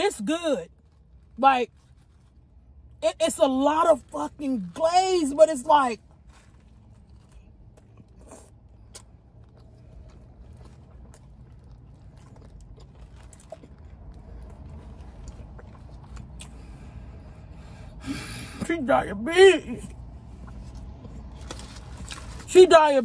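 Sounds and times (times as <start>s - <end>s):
low steady hum: 0.0s - 23.0s
person biting and chewing: 6.2s - 16.6s, 20.4s - 22.5s.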